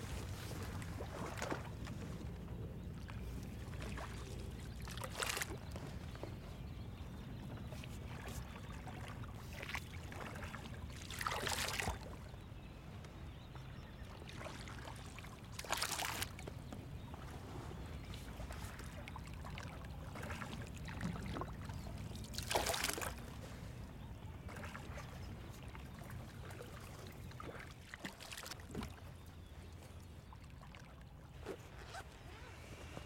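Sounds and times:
water rumbling along boat hull: 0.0 - 33.0
swishing trickling splashes: 22.3 - 23.3.

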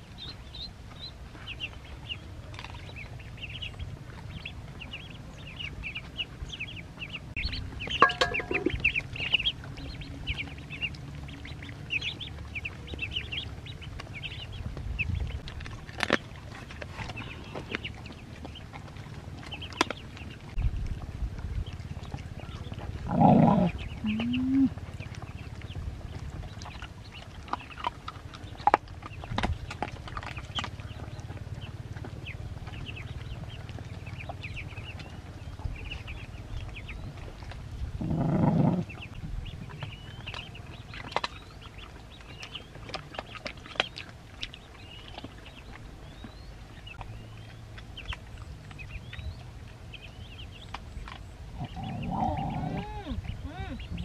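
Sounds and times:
ducklings peeping: 0.0 - 54.0
puppies chewing: 0.0 - 54.0.

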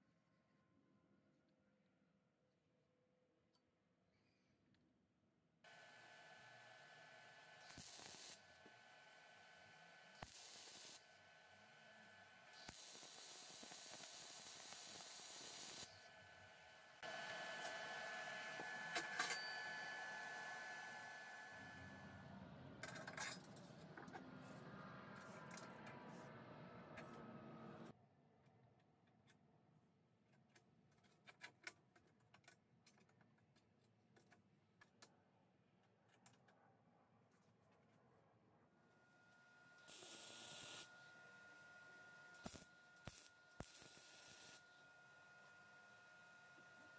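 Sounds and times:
welder arc hissing: 7.6 - 8.6, 10.2 - 11.2, 12.6 - 16.1, 39.9 - 40.9, 42.4 - 44.6.

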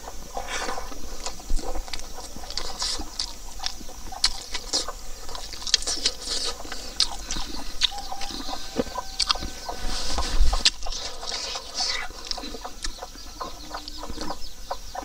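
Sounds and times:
person chewing food: 0.4 - 14.4
wet lip-smacking: 0.6 - 9.4, 10.6 - 13.0.

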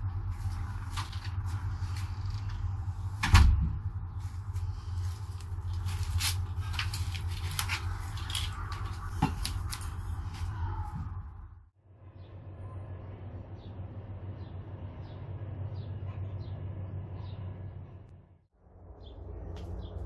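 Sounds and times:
low steady rumble: 0.0 - 20.0.

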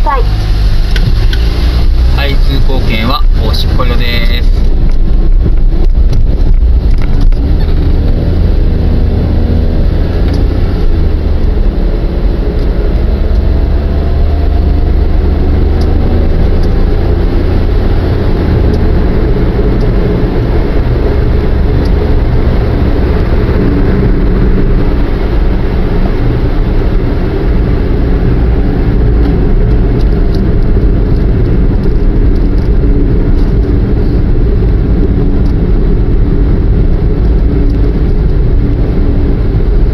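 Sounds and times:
car engine accelerating: 0.0 - 39.9
engine and tyre drone: 0.0 - 39.9.

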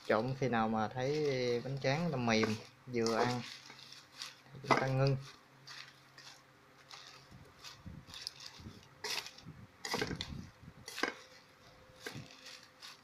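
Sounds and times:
chopsticks clattering in metal basin: 2.2 - 10.2.

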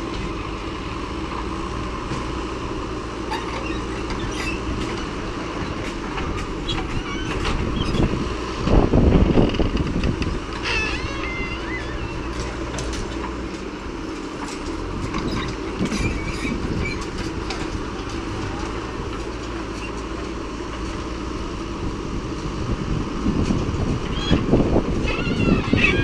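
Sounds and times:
diesel engine under load: 0.0 - 26.0
tractor engines idling: 0.0 - 26.0
brief squeal: 10.6 - 12.4.

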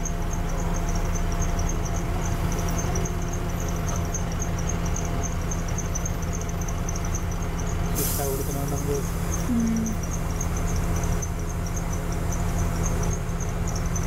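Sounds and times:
bus diesel engine idling: 0.0 - 14.0
faint high chirp: 0.3 - 10.8.

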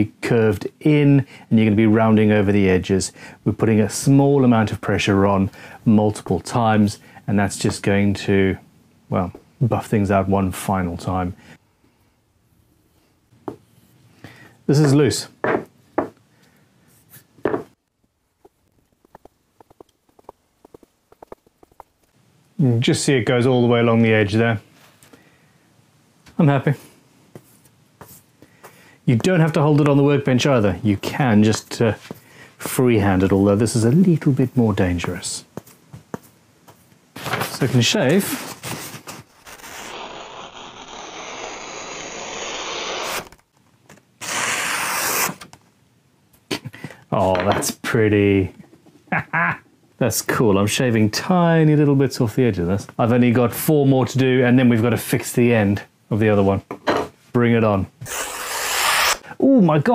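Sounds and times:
chisel stroked on leather strop: 19.0 - 22.0
chisel slicing paper: 38.2 - 43.4, 44.2 - 45.5, 58.0 - 59.2.

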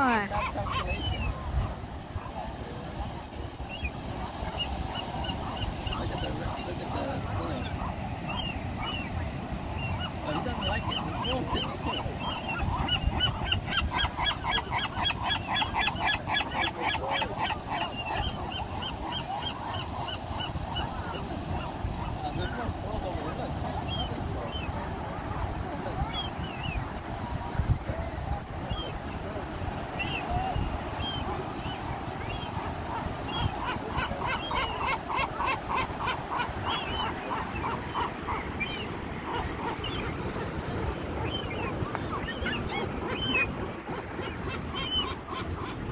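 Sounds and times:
gulls calling: 0.0 - 45.9.

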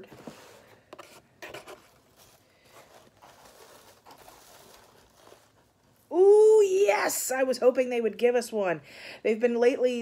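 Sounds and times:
paper shred rustling: 0.2 - 6.0.

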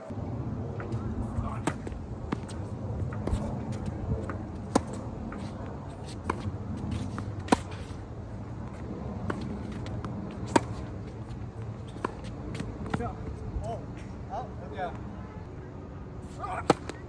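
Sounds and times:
steady background noise: 0.0 - 17.0
tennis racquet hitting ball: 4.2 - 7.9, 9.2 - 10.9.

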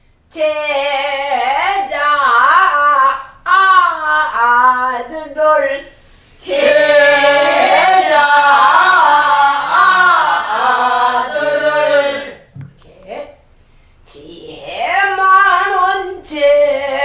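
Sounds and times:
woman singing folk song: 0.3 - 6.0, 14.4 - 17.0
group singing in unison: 6.4 - 12.5.

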